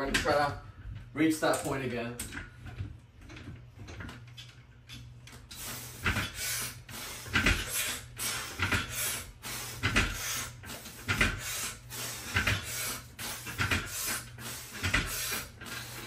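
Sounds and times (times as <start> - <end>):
steady low hum: 0.0 - 16.0
noisy pull-up strokes: 5.4 - 16.0.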